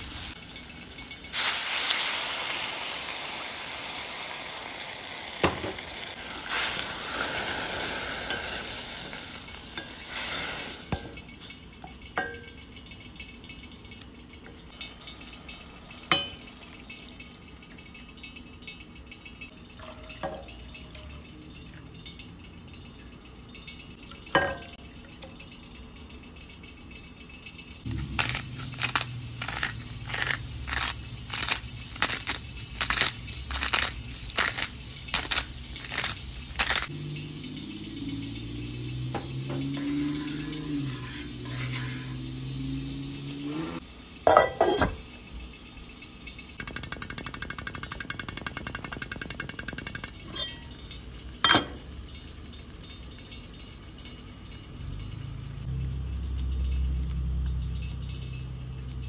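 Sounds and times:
onions sizzling in a pot: 0.0s - 12.4s, 14.6s - 17.5s, 27.8s - 57.8s
pepper mill grinding: 0.0s - 59.0s
utensil clinking against pot: 5.4s - 43.4s, 44.2s - 45.2s, 46.3s - 59.0s.

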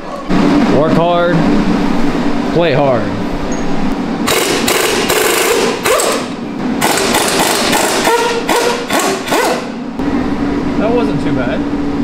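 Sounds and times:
air impact wrench bursts: 4.2s - 9.8s.

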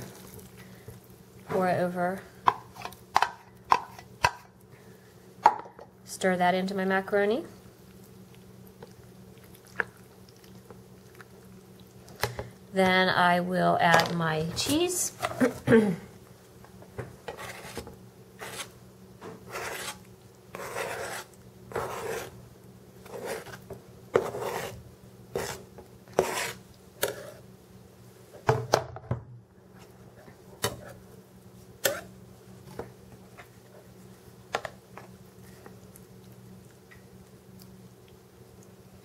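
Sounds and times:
knife scraping cutting board: 17.3s - 22.4s, 23.0s - 27.4s, 31.8s - 32.1s.

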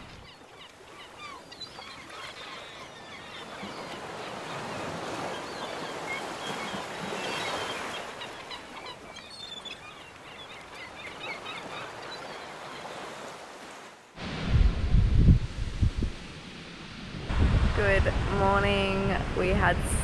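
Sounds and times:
birds chirping: 0.0s - 13.2s.

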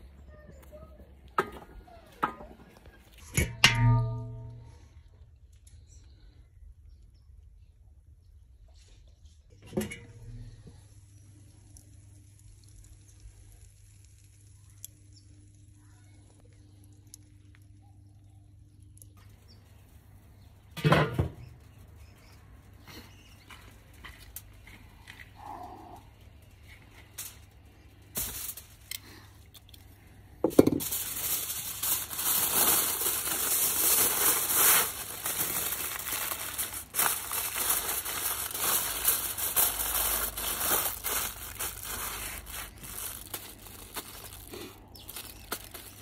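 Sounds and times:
aluminium foil crinkling: 21.6s - 46.0s.

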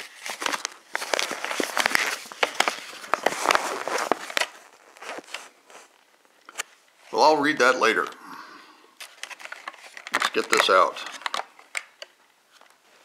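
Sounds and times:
paper crackling and rustling: 0.0s - 6.0s.

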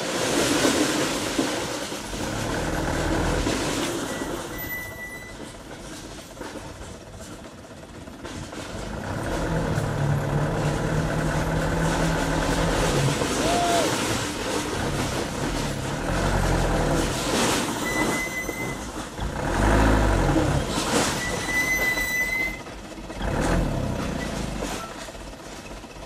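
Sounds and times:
diesel truck engine: 0.0s - 26.0s
brief high squeals: 4.2s - 5.4s, 17.8s - 18.8s, 21.2s - 22.6s.

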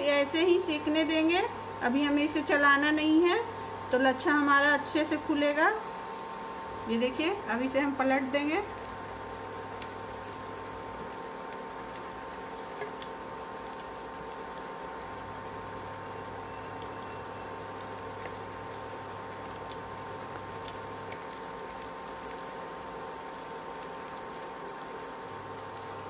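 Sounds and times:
oil bubbling and sizzling: 0.0s - 26.0s
faint crackles in oil: 8.5s - 26.0s.

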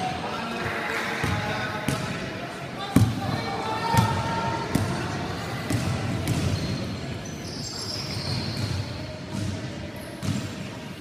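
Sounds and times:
shoe squeaks: 6.3s - 9.2s.

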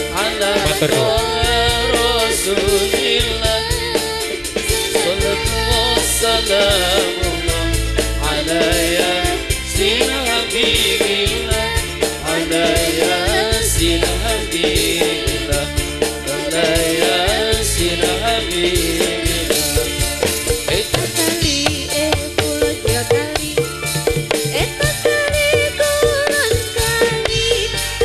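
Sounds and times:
person singing: 0.0s - 19.9s
live band music: 0.0s - 28.0s.

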